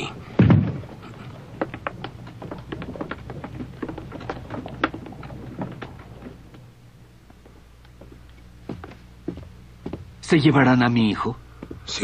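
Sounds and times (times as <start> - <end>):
boot footsteps on wooden boards: 0.0 - 10.3, 11.5 - 12.0
faint low hum: 0.0 - 12.0.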